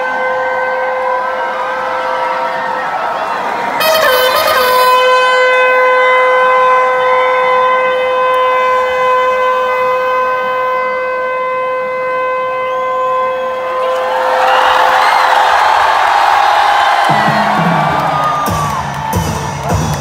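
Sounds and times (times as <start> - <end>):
crowd murmur: 17.0 - 20.0.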